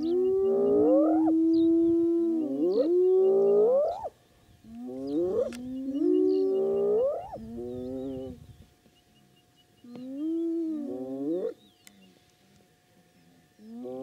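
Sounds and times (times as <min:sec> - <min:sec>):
hyenas whooping: 0:00.0 - 0:04.1
small birds chirping: 0:00.0 - 0:14.0.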